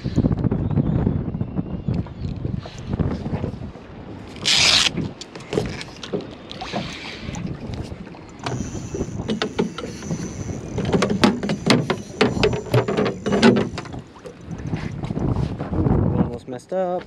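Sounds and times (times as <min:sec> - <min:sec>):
wind on microphone: 0:00.0 - 0:16.6
water lapping at hull: 0:02.5 - 0:16.2
clicks and knocks on boat deck: 0:05.0 - 0:06.9, 0:07.7 - 0:15.8.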